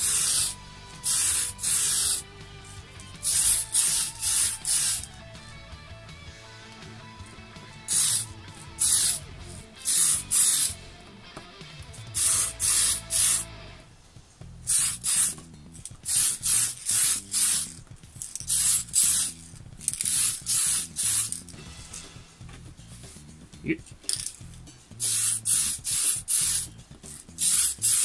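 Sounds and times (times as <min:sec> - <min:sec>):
aerosol spray can hissing: 0:00.0 - 0:02.2, 0:03.2 - 0:05.1, 0:07.8 - 0:10.8, 0:12.1 - 0:13.5, 0:14.7 - 0:21.6, 0:25.0 - 0:28.0.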